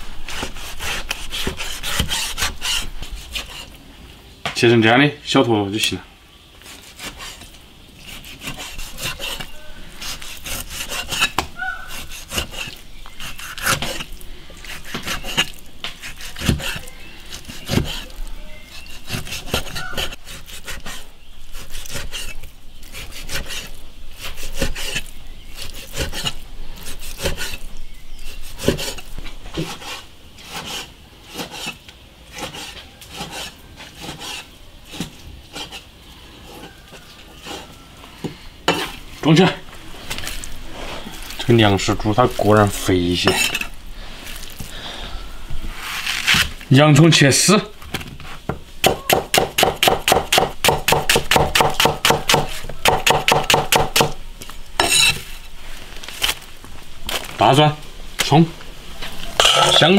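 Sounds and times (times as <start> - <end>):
blade scraping through meat: 0.2 - 3.8, 6.6 - 37.8.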